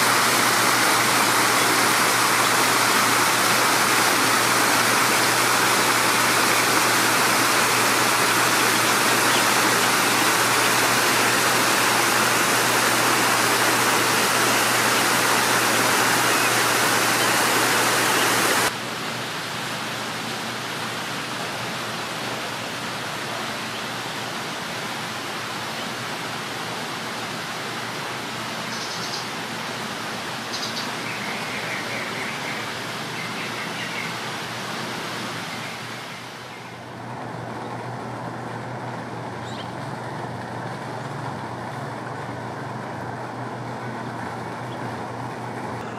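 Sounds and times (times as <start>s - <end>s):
water rushing over rocks: 0.0s - 18.8s
outdoor background hiss: 0.0s - 45.9s.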